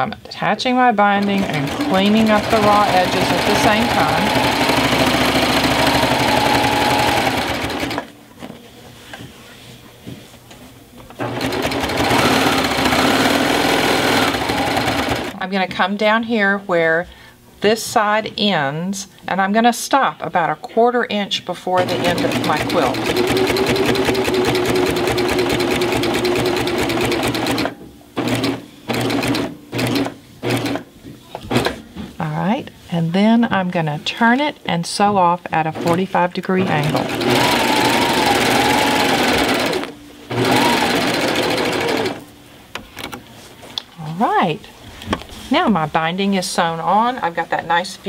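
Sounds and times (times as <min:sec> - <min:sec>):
serger stitching whir: 0:01.2 - 0:08.1, 0:11.2 - 0:15.4, 0:21.8 - 0:30.8, 0:36.6 - 0:42.2.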